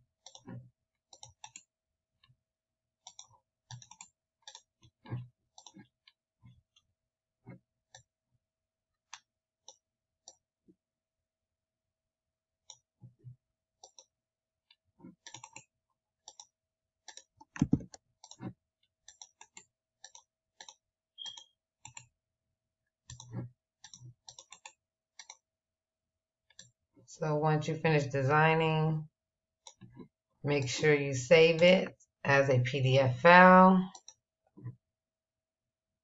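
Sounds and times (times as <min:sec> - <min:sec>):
computer mouse clicking: 0:00.2 - 0:01.7, 0:03.1 - 0:05.8, 0:15.2 - 0:15.7, 0:16.3 - 0:16.5, 0:17.1 - 0:18.5, 0:19.1 - 0:22.1, 0:23.1 - 0:25.4, 0:33.9 - 0:34.2.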